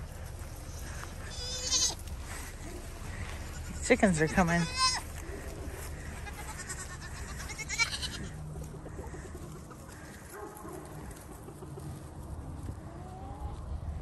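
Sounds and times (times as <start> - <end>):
steady low rumble: 0.0 - 14.0
goats bleating: 0.7 - 8.4.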